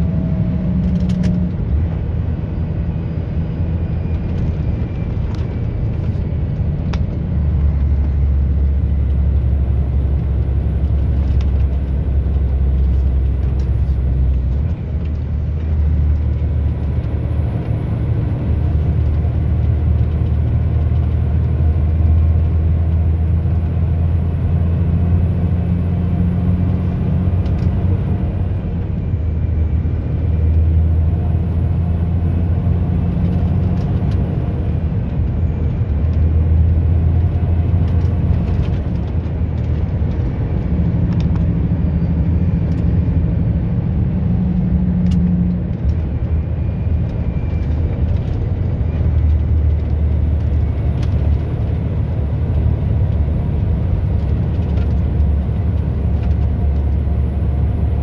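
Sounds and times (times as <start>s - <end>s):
road noise rumble: 0.0s - 58.0s
vehicle engine hum: 0.0s - 58.0s.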